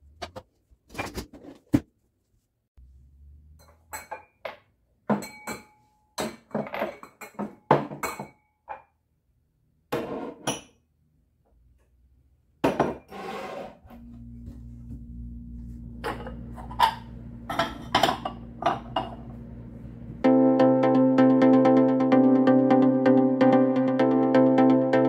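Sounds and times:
glasses and mugs clinking: 3.6 - 8.8, 16.0 - 19.3
steady low hum: 13.9 - 20.8.

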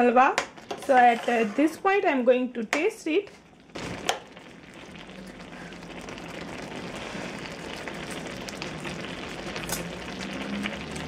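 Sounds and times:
milk mixture bubbling in pan: 3.3 - 11.0.

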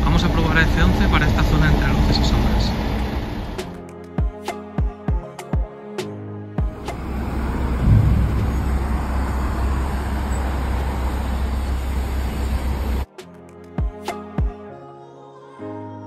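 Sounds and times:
city street traffic rumble: 0.0 - 3.8, 6.7 - 13.1.

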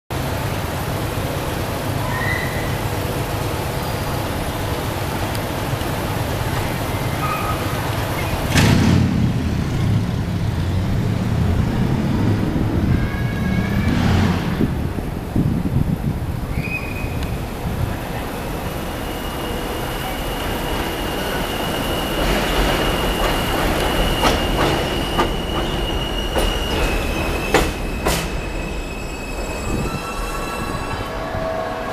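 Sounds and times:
subway wheels rumbling on rails: 0.1 - 31.9
high-pitched wheel squeals: 12.8 - 14.4, 18.9 - 31.9.

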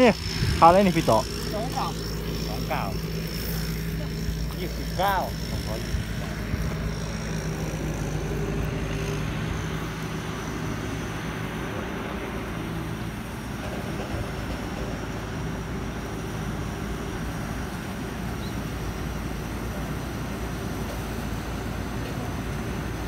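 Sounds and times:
thin high whine: 0.0 - 12.6
heavy engine droning: 0.0 - 23.0.

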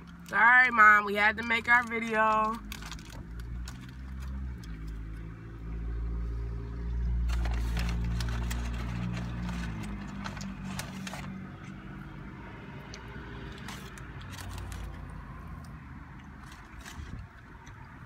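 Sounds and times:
vehicle engine rumble: 0.0 - 18.0
paper wrappers crinkling: 1.6 - 5.1, 7.2 - 11.7, 13.5 - 15.1.

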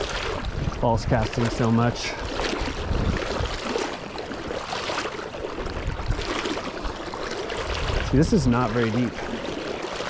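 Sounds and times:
wind buffeting microphone: 0.0 - 9.9
river current rushing: 0.0 - 10.0.

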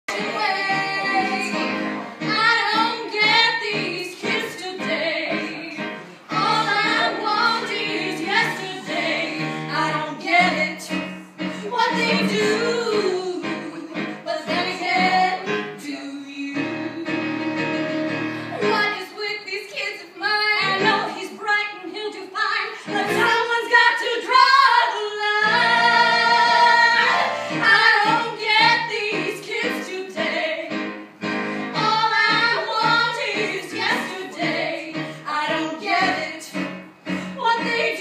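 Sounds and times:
women singing: 0.1 - 17.4, 18.6 - 30.8, 31.7 - 36.7, 37.3 - 38.0.

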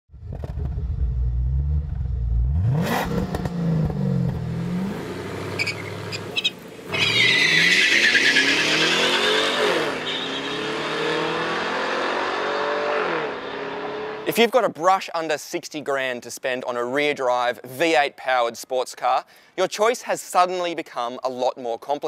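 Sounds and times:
car engines revving and accelerating: 1.8 - 14.3
high-pitched tire squeal: 5.5 - 11.7.

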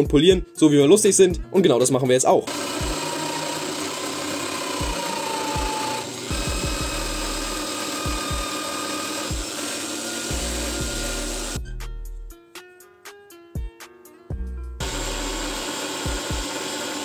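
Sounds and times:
background music: 0.0 - 17.0
electric drill whirring: 2.5 - 11.6, 14.8 - 17.0.

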